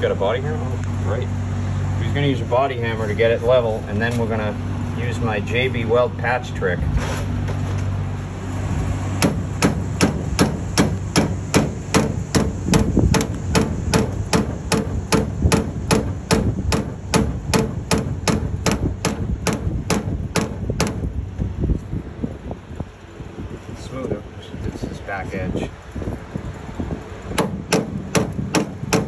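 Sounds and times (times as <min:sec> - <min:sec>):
hammer tapping on metal: 0:09.2 - 0:21.0.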